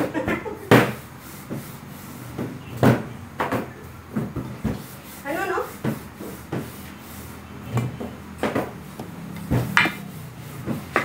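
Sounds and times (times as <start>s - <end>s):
rolling pin knocking on table: 9.5s - 10.0s.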